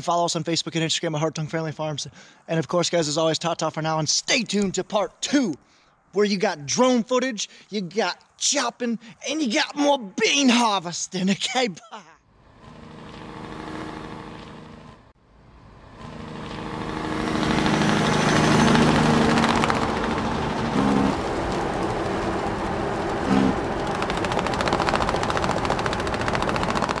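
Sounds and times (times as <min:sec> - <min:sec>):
tractor engine running: 0:16.0 - 0:27.0.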